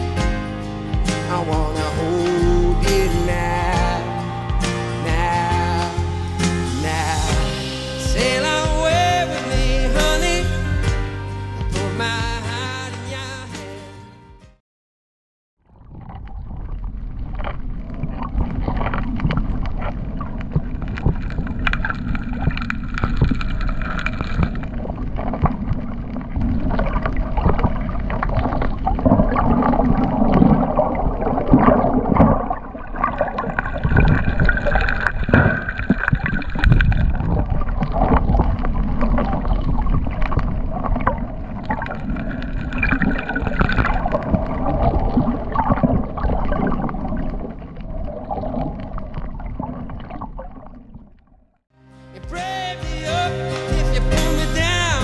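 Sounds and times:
muffled underwater water rush: 15.6s - 51.7s
small crackling clicks: 16.7s - 28.9s.

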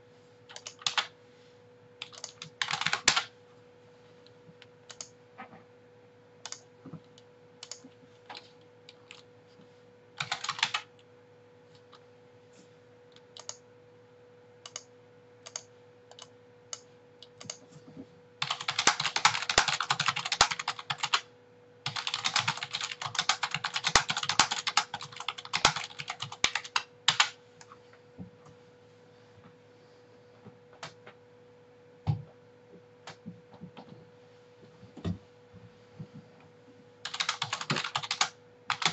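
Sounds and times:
faint steady hum: 0.0s - 38.9s
typing on a keyboard: 0.5s - 1.1s, 2.0s - 3.3s, 7.6s - 9.2s, 10.2s - 10.9s, 13.4s - 13.6s, 18.4s - 21.2s, 21.9s - 27.3s, 37.0s - 38.9s.

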